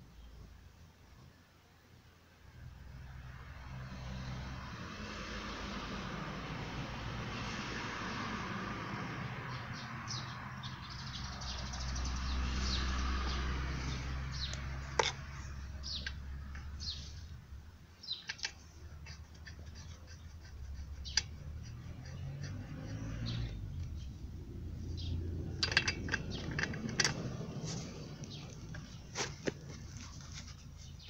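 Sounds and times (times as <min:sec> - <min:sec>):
small birds chirping: 0:09.5 - 0:31.0
sharp metallic clicks of wrench: 0:25.5 - 0:27.4.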